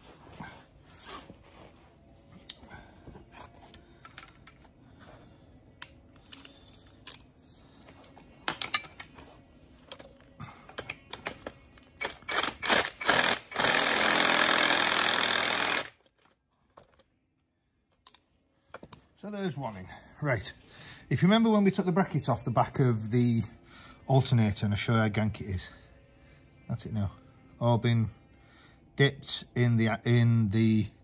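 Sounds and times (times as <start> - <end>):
metal tools clattering: 8.5 - 9.2
socket ratchet clicking: 12.0 - 16.0.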